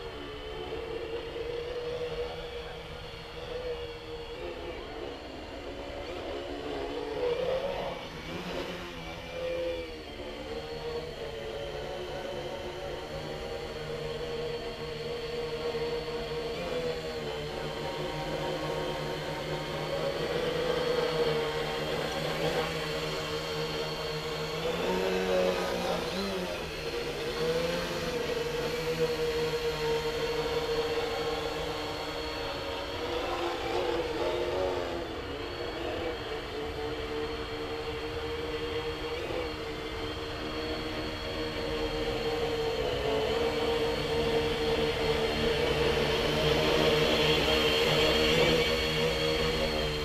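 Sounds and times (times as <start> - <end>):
quadcopter propellers whining: 0.0 - 50.0.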